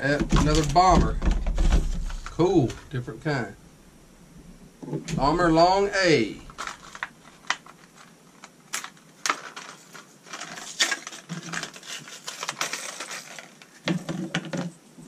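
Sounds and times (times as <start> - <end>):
plastic package crinkling and snapping: 6.5 - 14.7.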